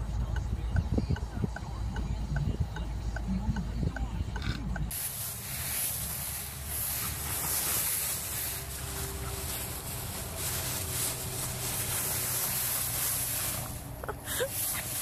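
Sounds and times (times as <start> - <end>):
faint regular ticking: 0.0 - 5.0
dog rustling through dry leaves: 4.9 - 15.0.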